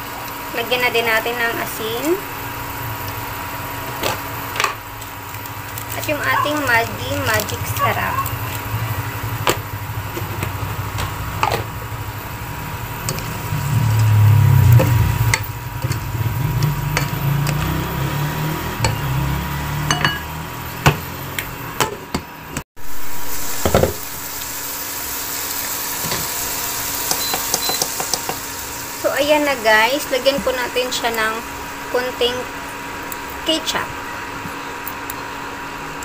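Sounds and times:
low rumble: 2.3s - 19.8s.

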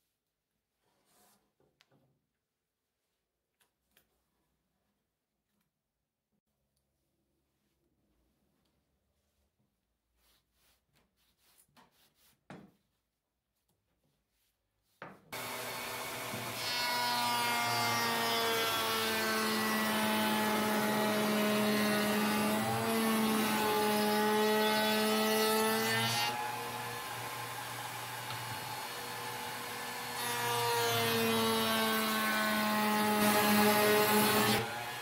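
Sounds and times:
router whining: 15.4s - 24.0s, 26.3s - 32.1s.

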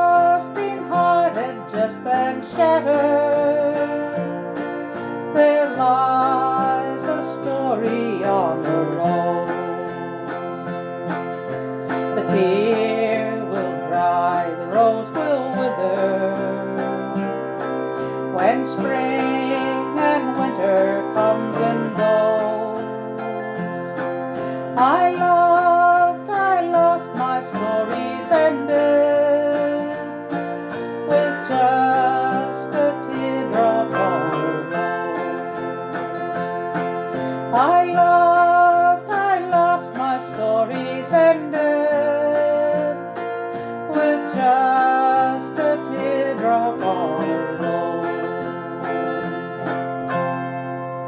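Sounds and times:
autoharp strummed in chords: 0.0s - 51.0s
sliding melody notes: 0.0s - 51.0s.

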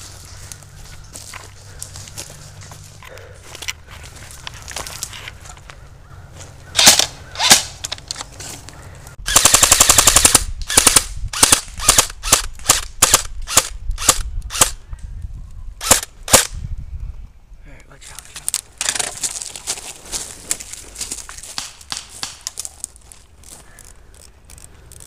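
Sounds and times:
airsoft rifles firing: 6.8s - 7.8s, 9.3s - 14.7s.

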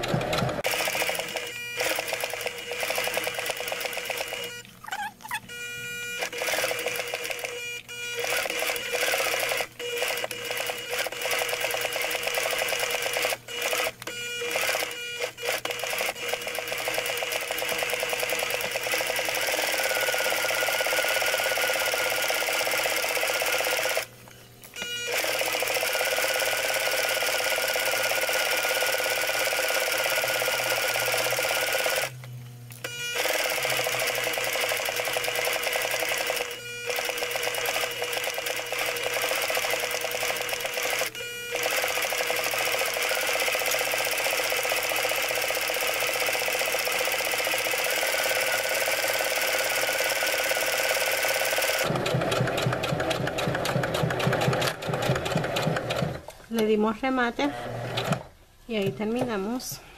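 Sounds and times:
sewing machine stitching: 0.0s - 4.5s, 6.2s - 7.5s, 8.2s - 24.1s, 25.1s - 32.1s, 33.2s - 56.2s, 57.5s - 58.3s.

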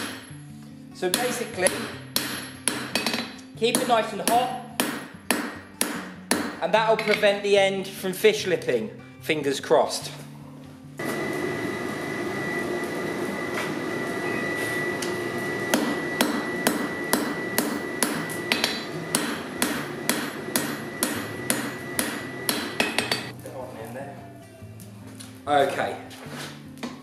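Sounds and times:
hammer striking steel on anvil: 0.0s - 0.3s, 1.0s - 7.4s, 15.6s - 23.3s.

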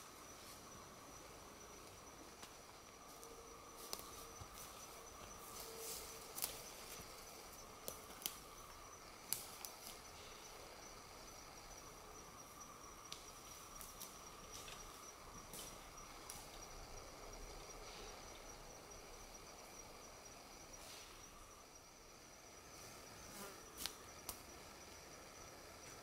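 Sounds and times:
high-pitched insect drone: 0.0s - 26.0s.

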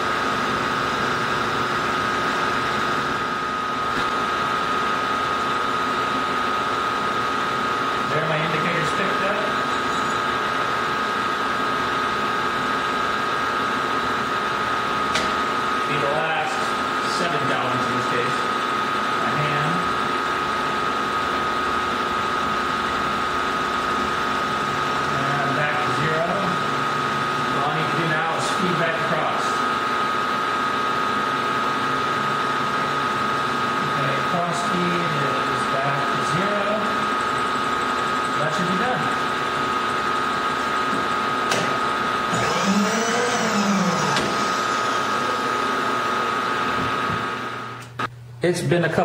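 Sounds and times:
milling machine whining: 0.0s - 48.1s
wavering cutting squeal: 9.6s - 10.3s, 42.3s - 45.6s
milling machine cutting steel: 41.8s - 47.8s.

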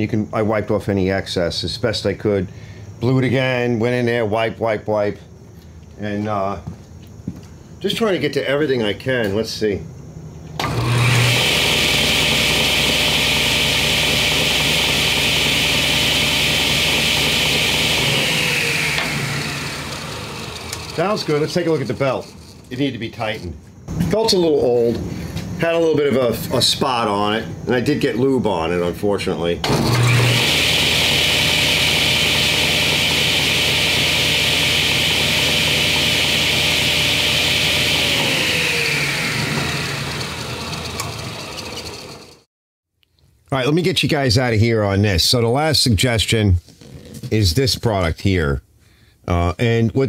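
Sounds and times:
table saw running: 10.6s - 22.8s, 29.6s - 42.5s.

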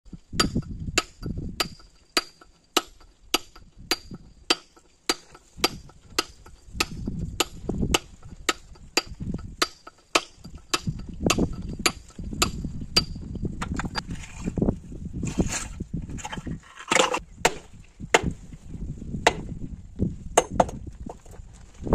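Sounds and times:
hammer striking chisel on stone: 0.4s - 14.0s.

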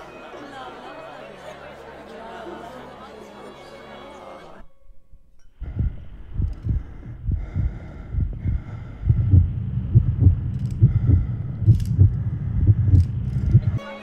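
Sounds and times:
low pulses: 5.6s - 13.8s
steady high drone: 5.6s - 13.8s.

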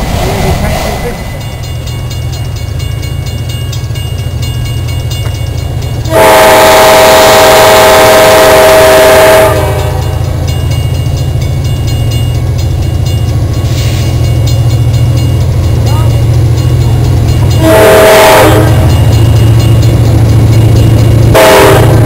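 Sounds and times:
steady low rumble: 0.0s - 6.0s
locomotive air horn blast: 6.1s - 10.0s, 17.6s - 18.8s, 21.4s - 22.0s.

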